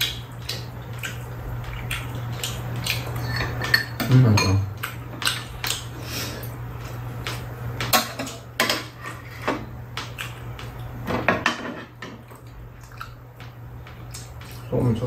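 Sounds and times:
steady low hum: 0.0 - 15.0
utensils clinking on bowls: 3.0 - 4.8.

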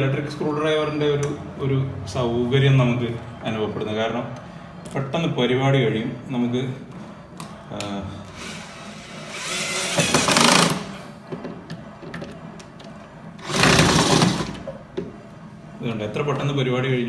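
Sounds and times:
cordless drill driving screw: 8.3 - 11.0.

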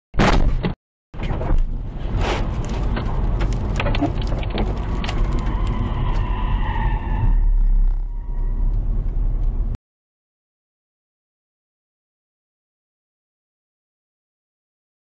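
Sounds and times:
tyres rumbling on wet road: 1.6 - 9.8.

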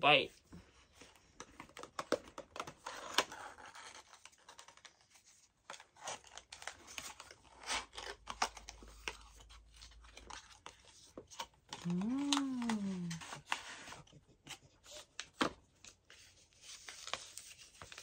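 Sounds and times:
cardboard and paper crinkling: 0.5 - 18.0.

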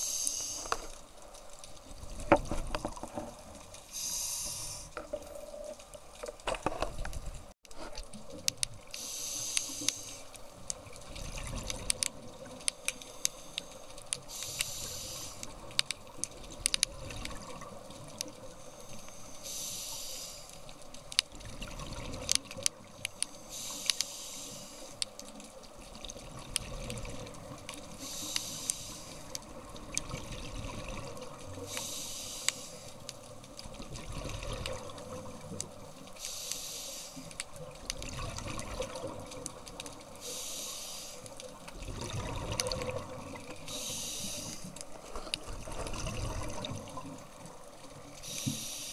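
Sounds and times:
diver exhaling bubbling hiss: 3.9 - 5.6, 14.3 - 15.4, 31.7 - 32.9, 40.2 - 41.2, 41.9 - 44.7, 48.2 - 48.9
sharp clicks: 22.3 - 24.2.

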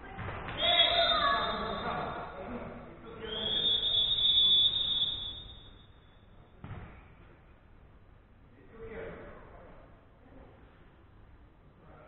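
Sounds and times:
referee's whistle long blast: 0.6 - 2.0, 3.3 - 5.9.

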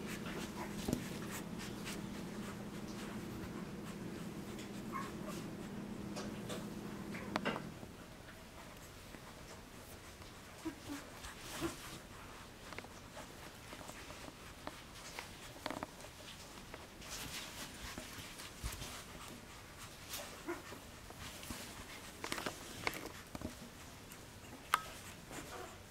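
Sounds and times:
soft rustling on blanket: 0.0 - 7.4, 8.1 - 25.9
puppy squeaks and grunts: 4.9 - 5.2.

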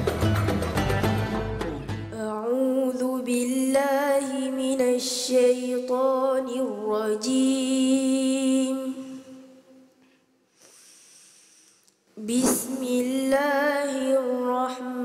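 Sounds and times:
girl chanting recitation: 12.2 - 15.0.

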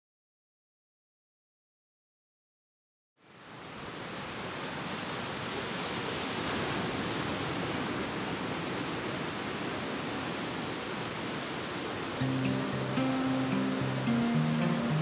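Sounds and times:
ocean surf breaking on rocks: 3.6 - 15.0.

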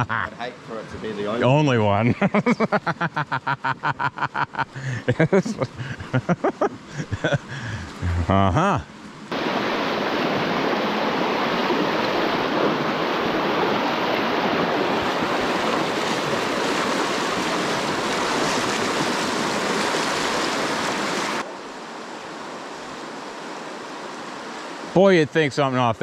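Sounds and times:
stream running over stones: 6.9 - 26.0.

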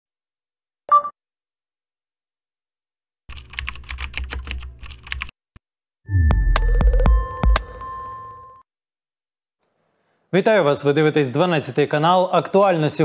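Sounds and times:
keyboard typing clicks: 3.3 - 5.4.

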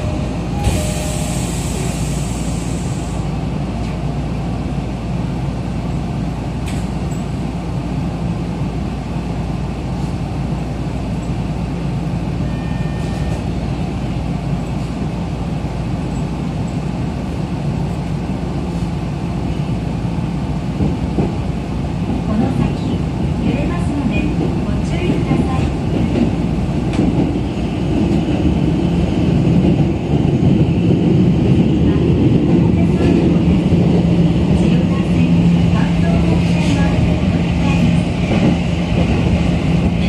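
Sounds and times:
subway motors and wheels rumbling: 0.0 - 40.0
air hiss: 1.0 - 3.3.

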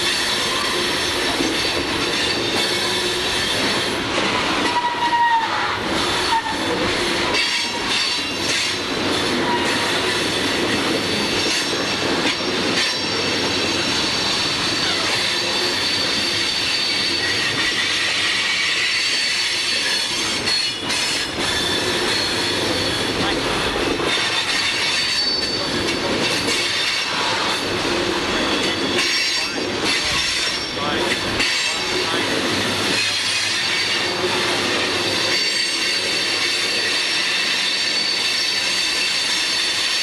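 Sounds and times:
train wheels rumbling on rails: 0.0 - 40.0
high-pitched flange squeal: 4.6 - 6.8, 13.0 - 20.8.

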